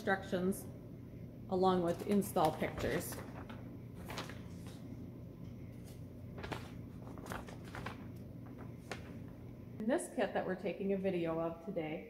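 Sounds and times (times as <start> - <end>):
low steady hum: 0.0 - 12.0
paper rustling: 1.9 - 5.0, 5.7 - 9.5.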